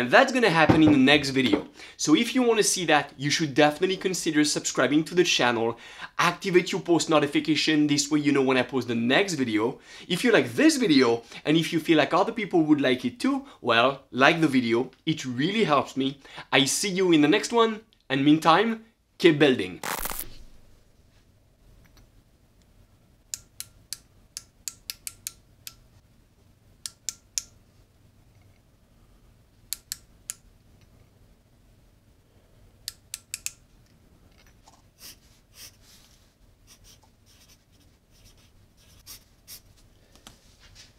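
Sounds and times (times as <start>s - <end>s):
pencil scratching on paper: 36.7s - 39.6s.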